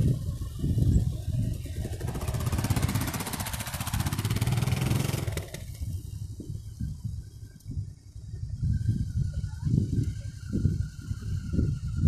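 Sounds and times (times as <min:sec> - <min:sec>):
motorcycle passing close: 0:00.0 - 0:06.0
distant motorcycles rumbling: 0:00.0 - 0:12.0.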